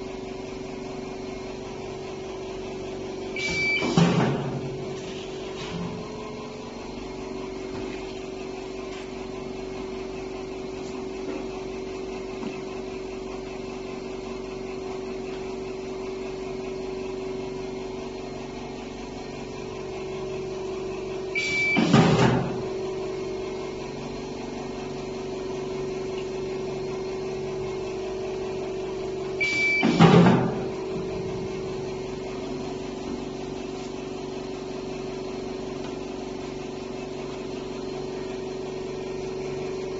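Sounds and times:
conveyor belt humming: 0:00.0 - 0:39.9
short high beep: 0:29.4 - 0:30.0.

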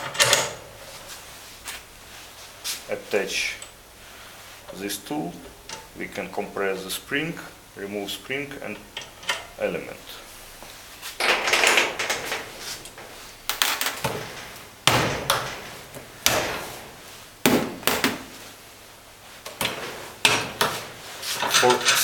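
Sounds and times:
metal parts clanking: 0:00.0 - 0:00.7, 0:11.2 - 0:16.7, 0:19.6 - 0:22.0
metal scraping rattle: 0:21.2 - 0:22.0.

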